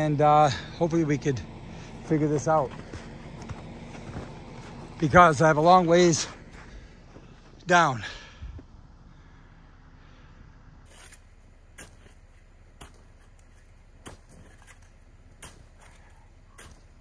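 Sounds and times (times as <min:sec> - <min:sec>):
snow shovel scraping packed snow: 0:01.7 - 0:06.8, 0:10.9 - 0:12.2.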